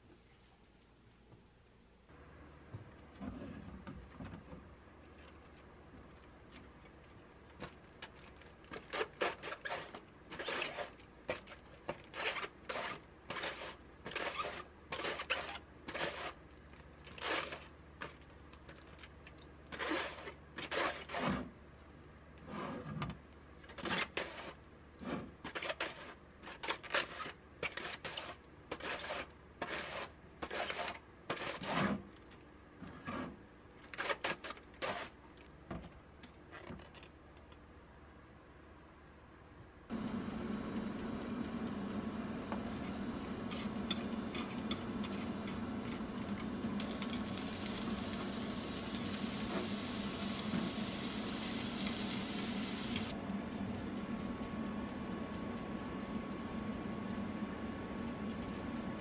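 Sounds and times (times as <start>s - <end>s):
cabbage shredded on slicer: 8.8s - 16.4s, 17.1s - 17.7s, 19.7s - 21.4s, 46.8s - 53.1s.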